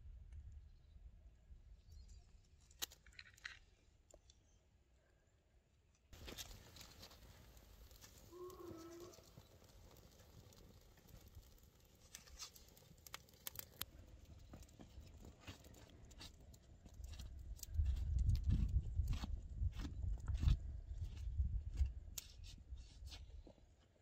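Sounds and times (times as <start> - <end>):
fire crackling and popping: 6.1 - 22.5.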